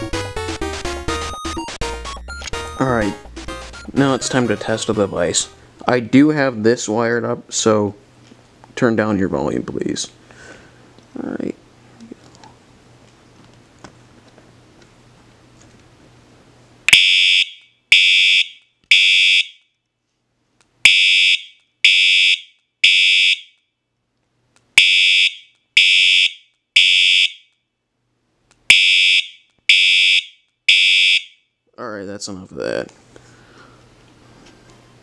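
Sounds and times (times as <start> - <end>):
fire alarm horn blasts: 16.9 - 19.6, 20.9 - 23.6, 24.8 - 27.5, 28.7 - 31.5.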